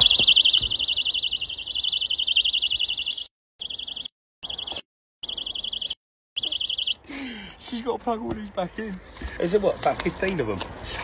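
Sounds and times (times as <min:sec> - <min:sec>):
personal alarm warbling shriek: 0:00.0 - 0:07.1.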